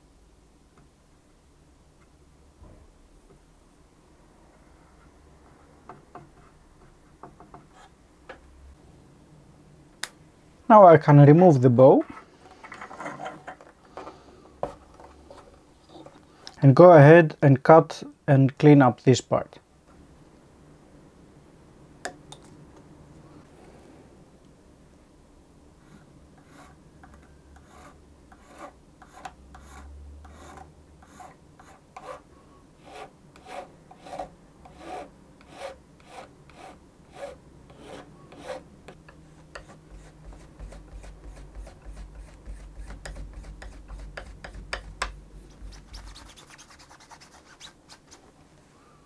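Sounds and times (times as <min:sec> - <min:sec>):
metal file stroking wire: 0:32.8 - 0:38.6.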